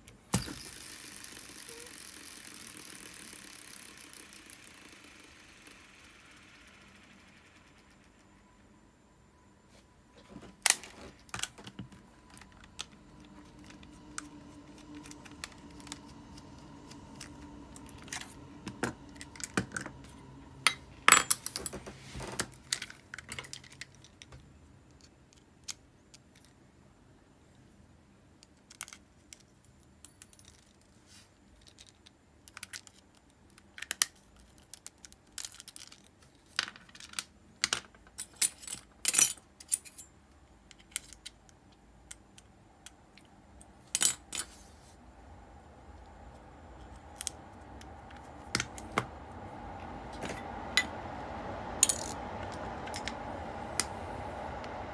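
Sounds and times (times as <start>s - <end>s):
faint steady hum: 0.0s - 54.9s
metallic clicks of small parts: 22.5s - 26.6s, 28.4s - 30.9s, 31.5s - 44.5s.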